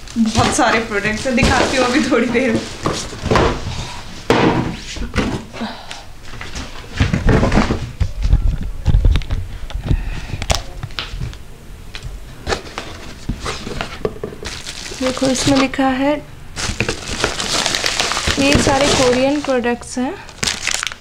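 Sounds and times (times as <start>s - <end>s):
cardboard box knocks and thunks: 1.4s - 3.7s, 6.9s - 8.2s
microphone handling bumps: 6.8s - 11.4s.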